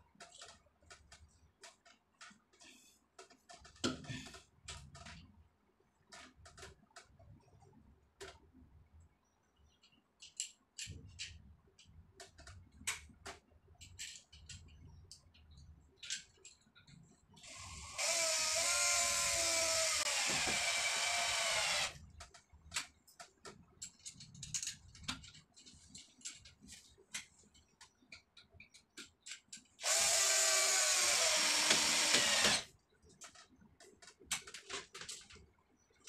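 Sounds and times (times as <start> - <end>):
cordless drill running: 17.4 - 22.0, 29.8 - 32.7.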